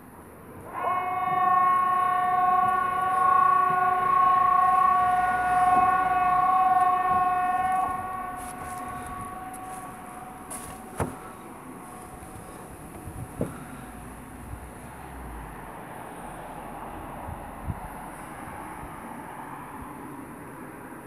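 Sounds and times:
warning siren steady tone: 0.6s - 14.0s.

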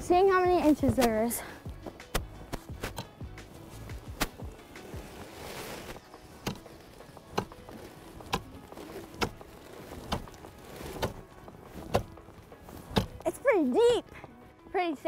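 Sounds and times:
ice spud striking ice: 6.2s - 12.2s.

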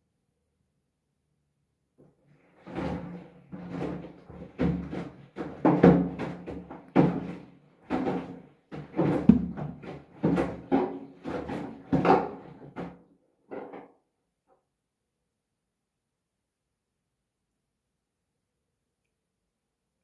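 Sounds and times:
washing machine drum sloshing: 2.6s - 12.7s.

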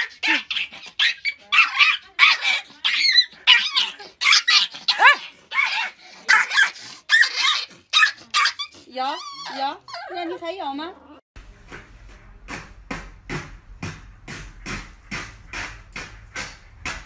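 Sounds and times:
puppy barking: 0.0s - 10.2s.

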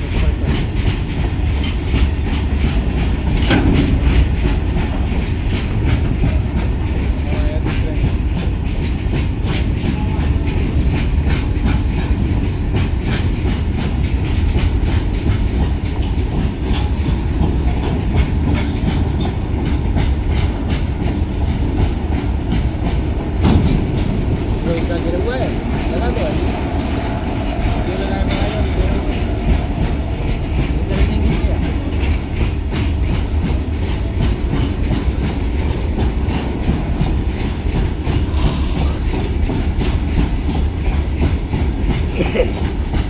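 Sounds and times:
freight train rumbling: 0.0s - 43.0s
wheels clacking over rail joints: 0.0s - 43.0s.

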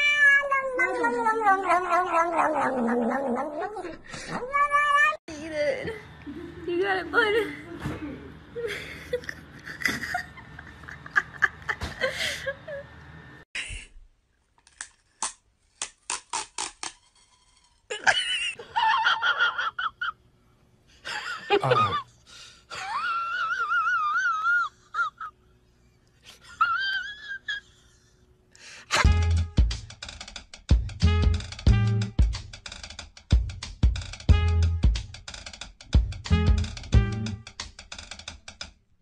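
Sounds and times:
cats meowing and yowling: 0.0s - 5.2s
drum-led music: 28.9s - 38.6s.

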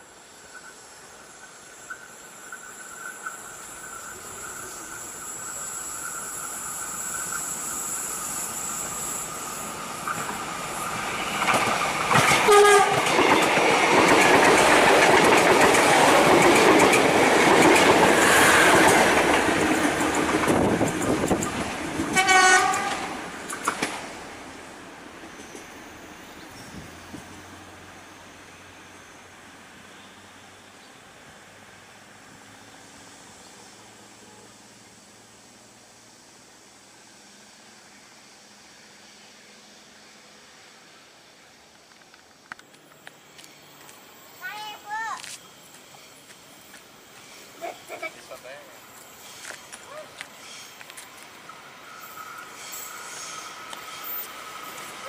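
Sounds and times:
train wheels rushing on rail: 0.0s - 55.0s
train horn blasts: 12.4s - 13.1s, 22.1s - 23.2s.

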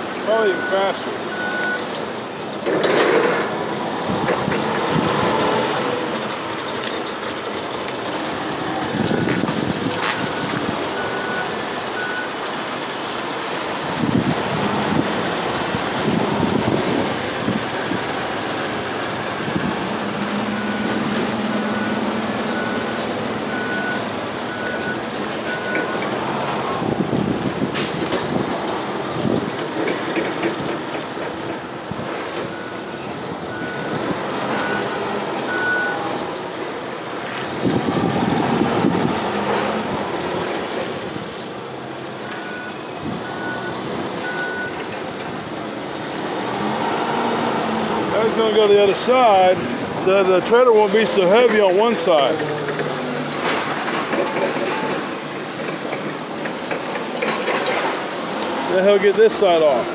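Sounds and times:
forklift engine running: 0.0s - 58.7s
reversing alarm beeping: 0.4s - 1.9s, 9.0s - 12.4s, 17.4s - 26.2s, 32.4s - 36.1s, 42.2s - 44.9s.

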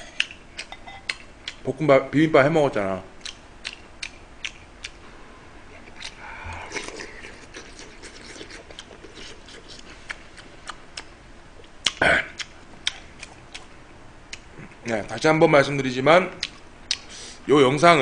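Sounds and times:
person chewing: 0.0s - 1.6s, 3.2s - 5.0s, 5.7s - 13.7s, 14.3s - 14.8s, 16.4s - 17.2s
sharp mouth clicks: 3.2s - 5.0s, 5.8s - 13.7s, 16.4s - 17.1s.

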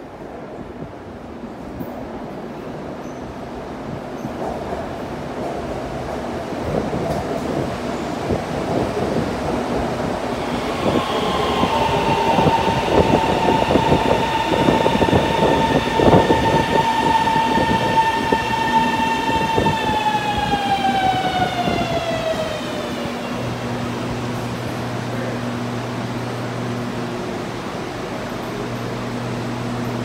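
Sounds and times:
train rumble: 0.0s - 30.0s
electric train traction whine: 10.2s - 30.0s.

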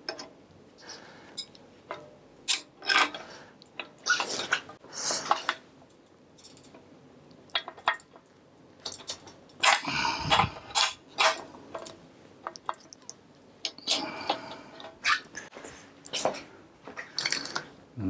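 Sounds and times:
metal tools clinking and scraping: 1.4s - 3.3s, 8.8s - 12.0s.

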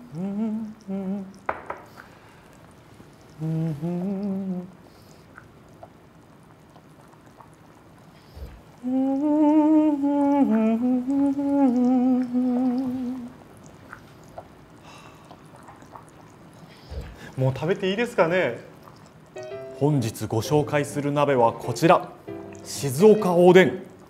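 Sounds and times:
man humming: 0.0s - 1.5s, 3.4s - 4.8s, 8.8s - 13.4s.

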